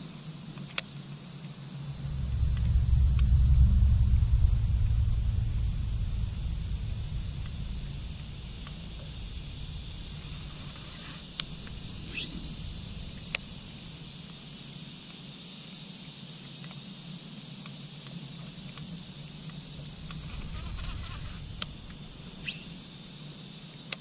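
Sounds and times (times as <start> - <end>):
low rumble: 1.6 - 14.8, 18.9 - 22.9
insects buzzing: 1.7 - 14.5, 19.0 - 23.0
faint chirp: 1.8 - 14.1.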